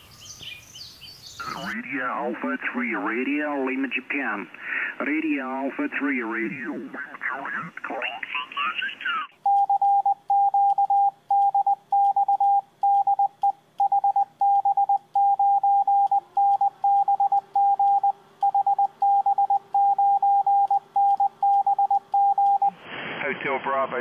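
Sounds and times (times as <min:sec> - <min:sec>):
morse code tone: 0:09.4 - 0:22.8.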